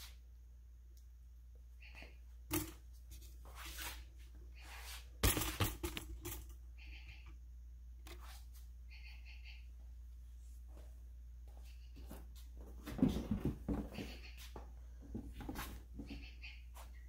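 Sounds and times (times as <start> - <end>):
faint high squeaks: 13.9 - 14.6.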